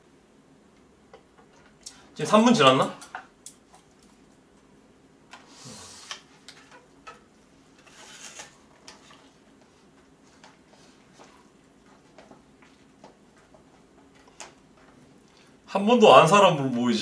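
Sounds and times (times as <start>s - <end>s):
paper lid rustling and crinkling: 7.8s - 9.4s.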